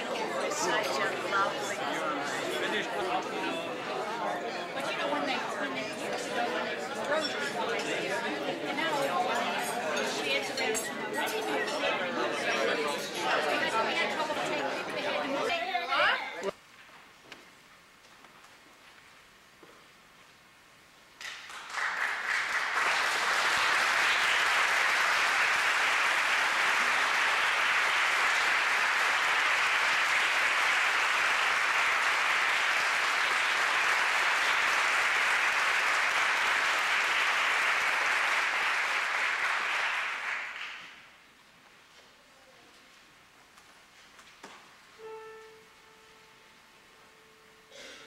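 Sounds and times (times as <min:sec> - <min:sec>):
audience applauding: 0:00.0 - 0:08.0, 0:21.2 - 0:41.2.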